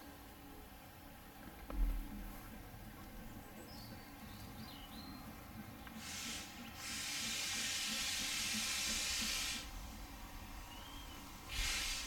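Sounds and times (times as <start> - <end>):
steam locomotive hissing steam: 5.9 - 12.0.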